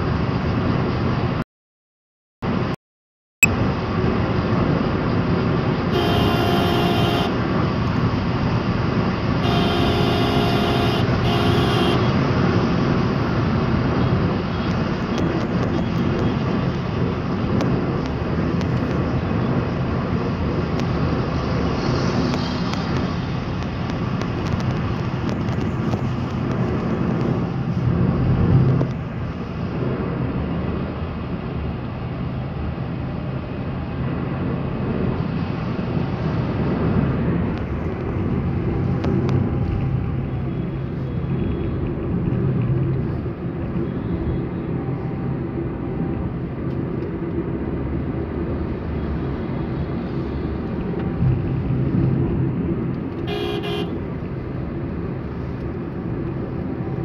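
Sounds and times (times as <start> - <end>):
car road and engine noise: 0.0 - 1.5, 2.4 - 2.8, 3.4 - 57.0
vehicle horn honking: 5.9 - 7.4, 9.4 - 12.1, 53.2 - 54.0.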